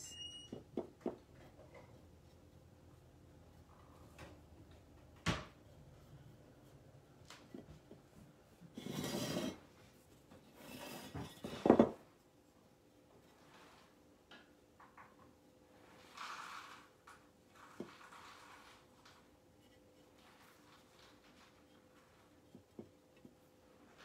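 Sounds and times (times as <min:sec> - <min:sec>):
rubbing and rustling: 0:15.7 - 0:24.0.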